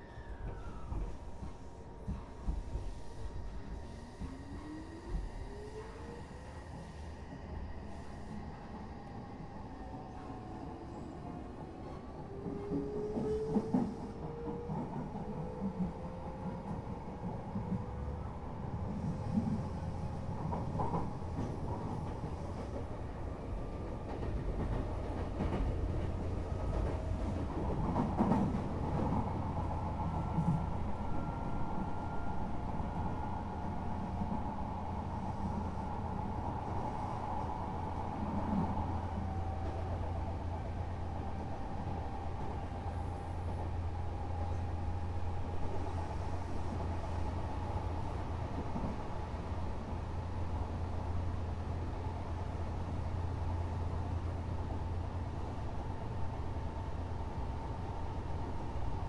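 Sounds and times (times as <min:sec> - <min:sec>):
train rumbling on rails: 0:00.0 - 0:59.0.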